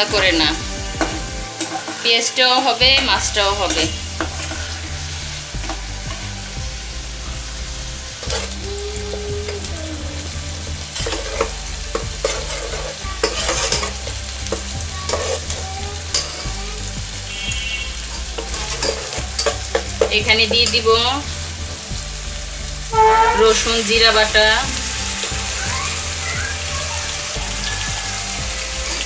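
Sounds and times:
spatula scraping pan: 0:00.0 - 0:06.4, 0:08.2 - 0:08.6, 0:10.9 - 0:16.6, 0:17.9 - 0:20.9
food sizzling in hot oil: 0:00.0 - 0:29.0.

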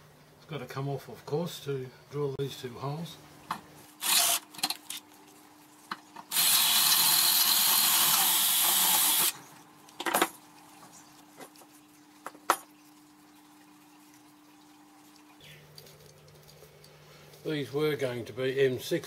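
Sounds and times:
cordless drill running: 0:04.0 - 0:04.6, 0:06.3 - 0:09.4.

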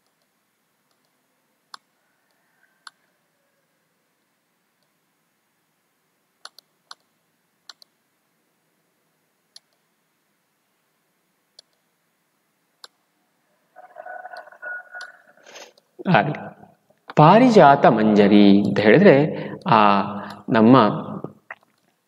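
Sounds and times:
computer mouse clicking: 0:00.0 - 0:01.9, 0:06.4 - 0:08.0, 0:09.5 - 0:09.8, 0:11.5 - 0:11.9, 0:12.8 - 0:13.0
faint steady hum: 0:00.0 - 0:22.0.

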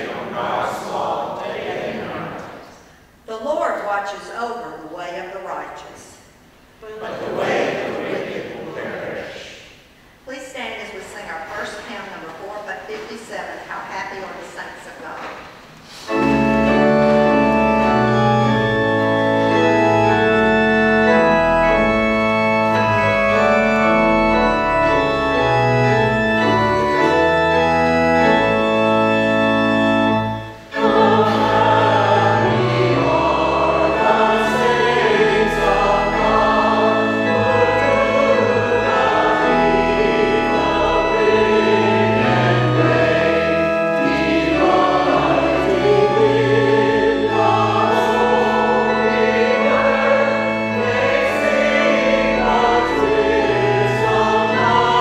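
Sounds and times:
church organ playing chords: 0:00.0 - 0:02.4, 0:07.1 - 0:09.2, 0:15.9 - 0:55.0
voices singing a hymn: 0:00.0 - 0:02.8, 0:06.8 - 0:09.9, 0:15.9 - 0:55.0.

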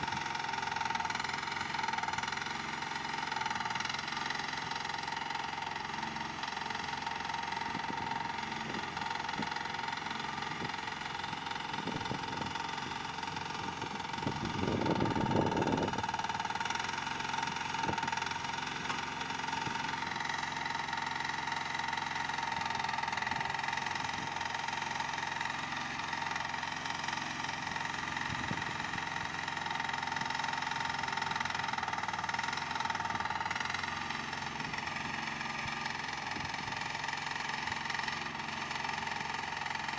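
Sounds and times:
excavator engine running: 0:00.0 - 0:39.9.

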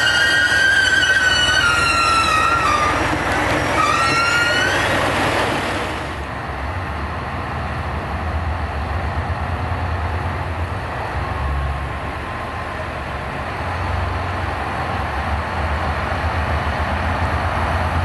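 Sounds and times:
high squealing tone: 0:00.0 - 0:06.2
railcar diesel engine rumble: 0:00.0 - 0:18.0.

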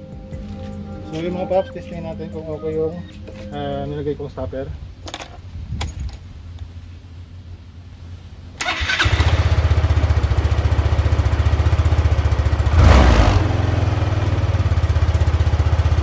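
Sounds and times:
scooter engine starting and idling: 0:08.6 - 0:16.0.

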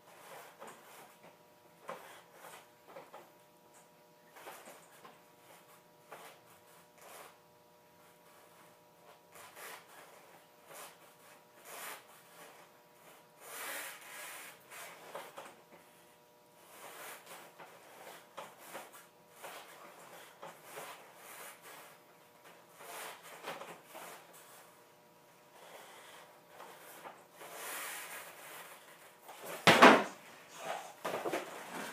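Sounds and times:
loud thump on concrete: 0:29.6 - 0:30.2.

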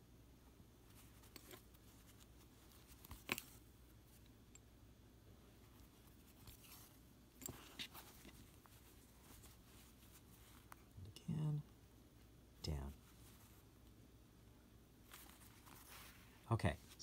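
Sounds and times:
fabric rustling: 0:00.8 - 0:04.2, 0:05.5 - 0:11.0, 0:12.8 - 0:13.8, 0:15.0 - 0:17.0.

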